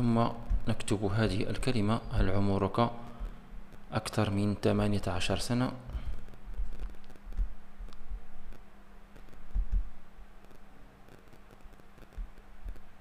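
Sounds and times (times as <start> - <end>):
dull low thumps: 0.4 - 0.8, 6.1 - 8.4, 9.4 - 10.0.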